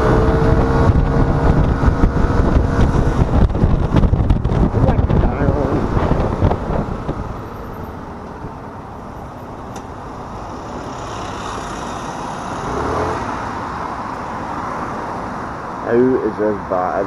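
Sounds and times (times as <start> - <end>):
low engine hum: 0.0 - 10.4
tyre and wind road noise: 0.0 - 17.0.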